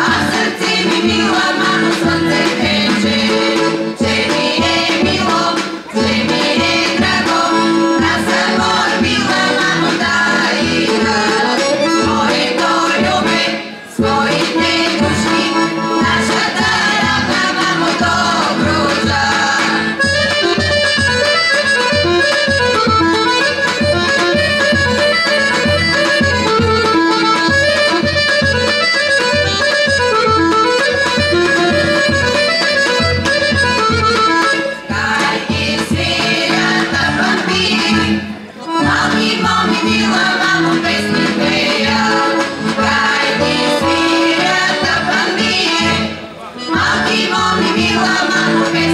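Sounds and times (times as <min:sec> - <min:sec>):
women's choir singing: 0:00.0 - 0:20.2, 0:34.9 - 0:48.9
accordion playing: 0:00.0 - 0:48.9.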